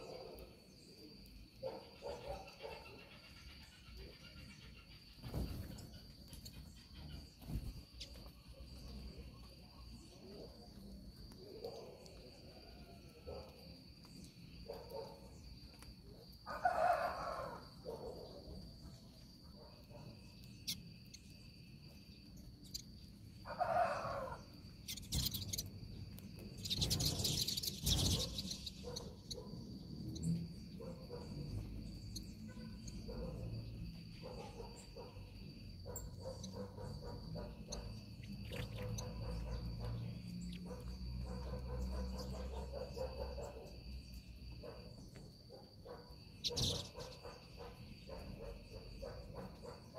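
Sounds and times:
small birds chirping: 0:00.0 - 0:49.9
high insect buzz: 0:26.6 - 0:30.8.

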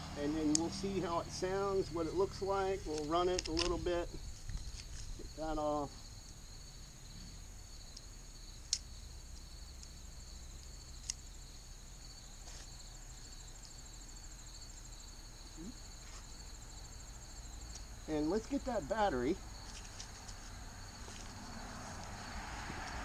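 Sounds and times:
insects chirping: 0:00.0 - 0:23.0
sharp clicks: 0:02.9 - 0:03.8.

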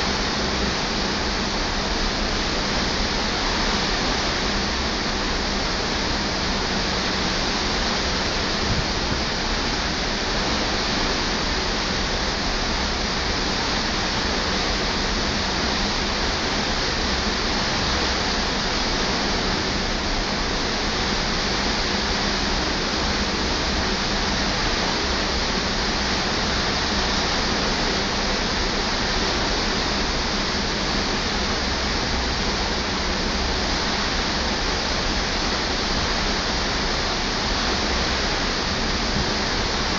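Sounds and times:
wind and sea rushing: 0:00.0 - 0:39.9.

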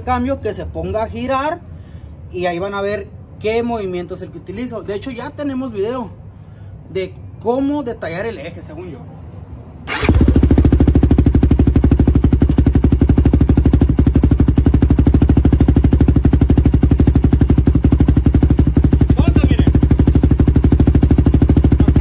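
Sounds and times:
motorcycle engine idling: 0:09.9 - 0:22.0.

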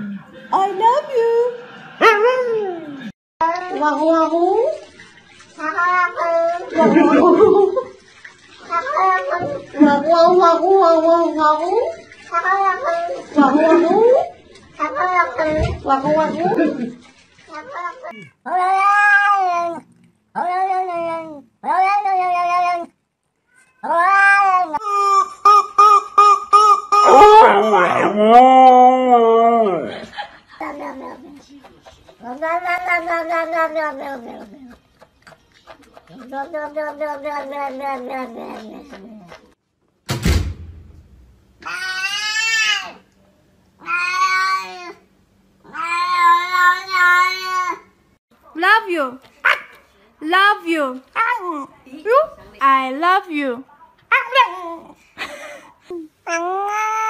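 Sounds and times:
cat meowing: 0:17.6 - 0:19.8, 0:32.2 - 0:34.5
sudden thump: 0:40.1 - 0:41.5.

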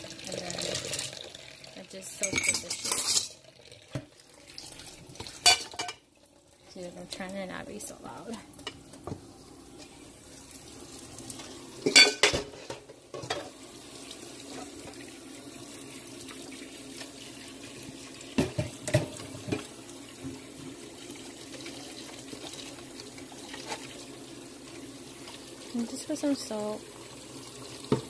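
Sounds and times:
tap water running into sink: 0:00.0 - 0:28.0
dishes clattering: 0:02.2 - 0:04.1, 0:05.2 - 0:06.0, 0:11.8 - 0:13.6, 0:18.4 - 0:19.7.

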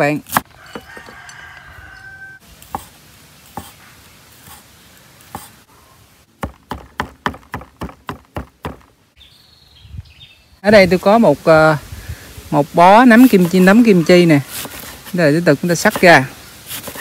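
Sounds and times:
knife chopping on wooden board: 0:02.7 - 0:02.9, 0:06.4 - 0:08.9.

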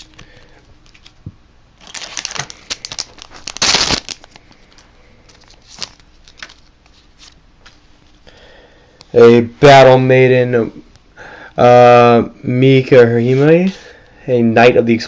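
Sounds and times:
foil pack ripping: 0:01.8 - 0:04.4
foil pack crinkling: 0:01.8 - 0:07.4.

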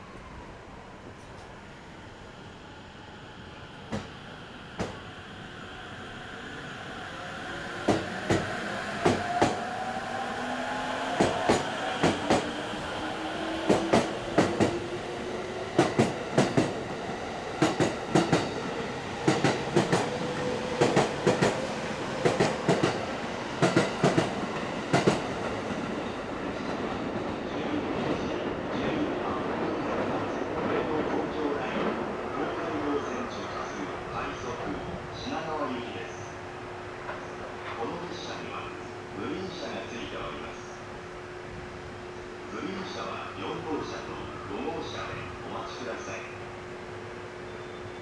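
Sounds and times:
train rumble: 0:07.0 - 0:32.1.

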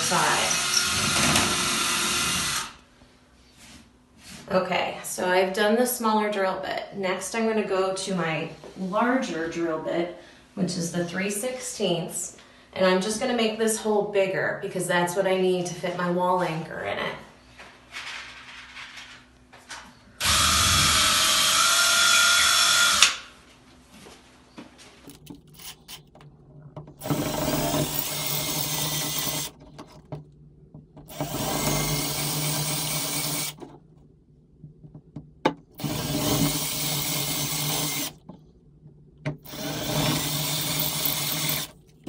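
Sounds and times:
cordless drill whining: 0:00.0 - 0:02.8, 0:20.2 - 0:23.1, 0:27.0 - 0:29.9, 0:31.1 - 0:33.6, 0:35.8 - 0:38.2, 0:39.4 - 0:41.8.

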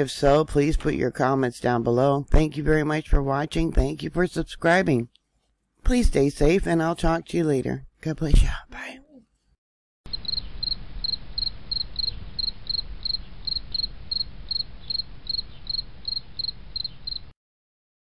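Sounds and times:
cricket chirping: 0:10.1 - 0:17.4.

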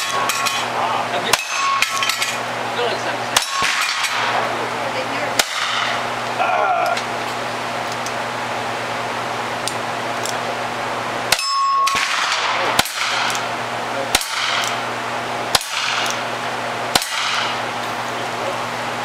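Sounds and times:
bullet clanging on steel target: 0:00.0 - 0:00.7, 0:01.3 - 0:02.4, 0:03.4 - 0:04.3
revolver shots: 0:03.3 - 0:04.7.

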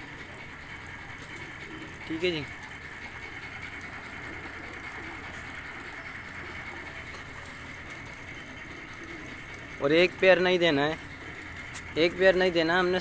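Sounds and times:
background hum and hiss: 0:00.0 - 0:13.0.

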